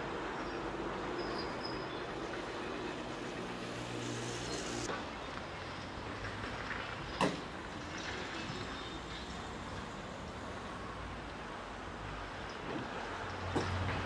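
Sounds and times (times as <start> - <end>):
excavator engine and hydraulics: 0.0 - 14.0.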